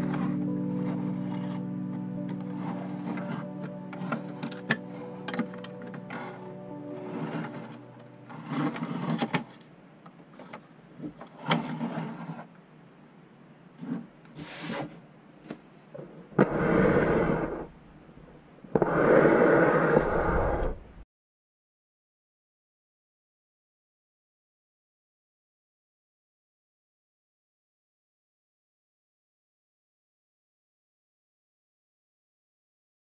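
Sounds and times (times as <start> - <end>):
toy truck scraping on tabletop: 0.0 - 1.6, 2.4 - 6.4, 7.0 - 9.6, 10.4 - 12.5, 13.8 - 15.0, 16.4 - 17.7, 18.8 - 21.0
toy truck rolling: 7.0 - 9.7, 10.4 - 12.5.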